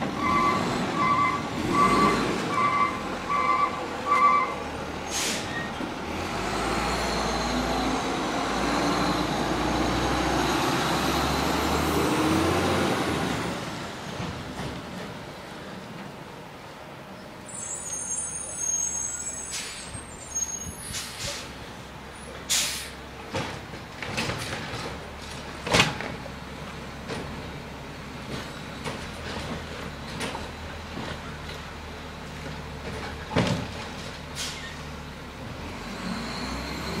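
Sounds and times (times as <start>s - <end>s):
air brakes hissing: 5.0s - 5.7s, 17.5s - 21.6s, 22.5s - 23.0s, 34.3s - 34.8s
high squeal: 17.5s - 21.2s.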